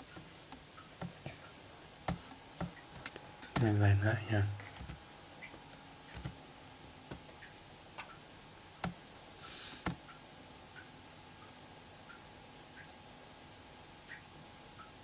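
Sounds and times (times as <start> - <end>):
keyboard and mouse clicks: 2.1 - 3.7, 4.6 - 6.4, 7.1 - 8.2, 8.8 - 9.0.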